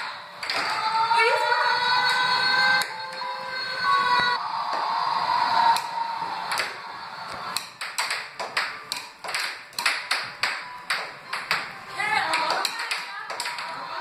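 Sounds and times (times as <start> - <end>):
air hockey puck clacking: 6.5 - 13.8.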